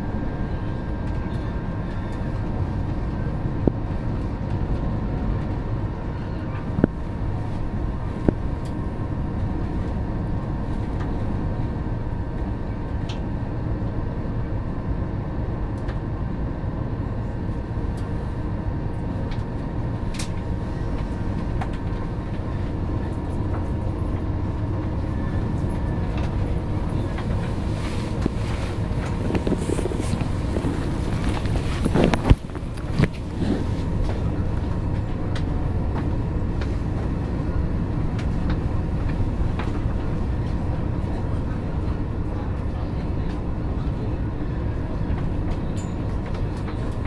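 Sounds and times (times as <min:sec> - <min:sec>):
train wheels rumbling on rail: 0:00.0 - 0:47.0
traction motor hum: 0:23.3 - 0:40.8.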